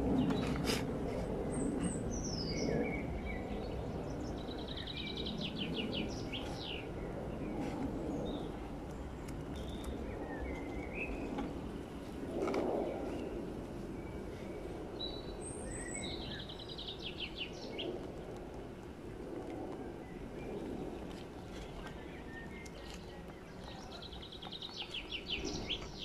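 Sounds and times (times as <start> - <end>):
songbirds chirping and singing: 1.4 - 11.7, 14.1 - 18.0, 20.0 - 26.0.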